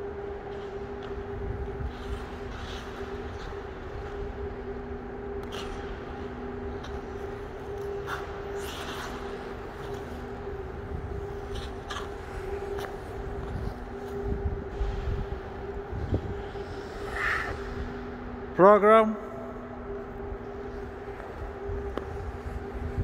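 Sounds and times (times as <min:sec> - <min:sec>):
mechanical hum: 0:00.0 - 0:23.0
skate blades scraping ice: 0:01.8 - 0:04.4, 0:05.4 - 0:14.3, 0:15.0 - 0:18.0.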